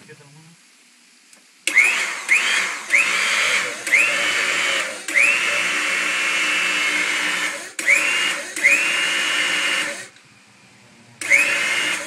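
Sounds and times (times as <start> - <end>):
hydraulic pump motor whining: 1.7 - 10.2, 11.1 - 12.0.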